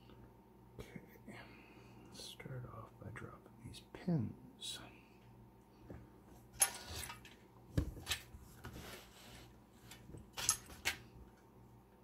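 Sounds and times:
metallic scrapes of key in lock: 6.6 - 7.3.

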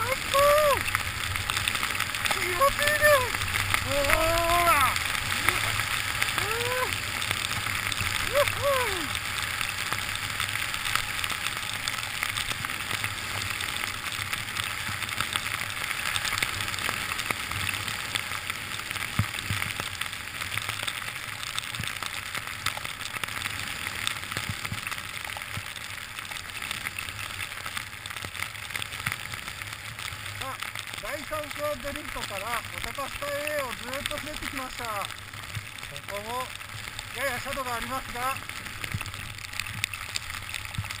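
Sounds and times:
skis sliding through powder snow: 0.0 - 20.4, 31.0 - 35.0, 37.1 - 39.2.

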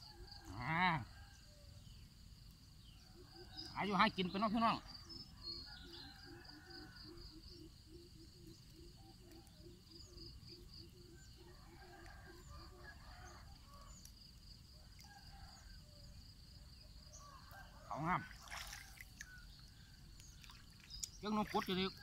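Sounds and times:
insect trill: 0.0 - 22.0
bird chirps: 19.1 - 22.0.

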